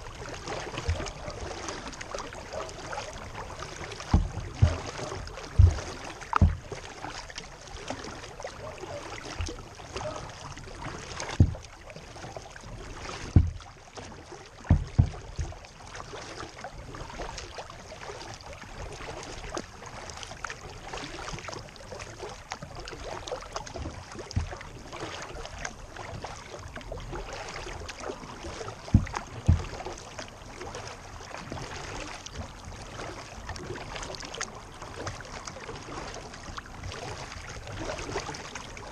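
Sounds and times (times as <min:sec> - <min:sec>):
low thumps against hull: 0:00.0 - 0:17.6, 0:23.5 - 0:34.2
water splashing around kayak: 0:00.0 - 0:38.9.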